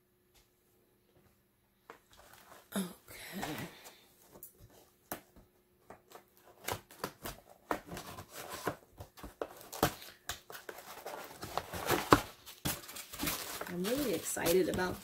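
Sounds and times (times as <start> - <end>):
cardboard box being opened: 7.3 - 15.0.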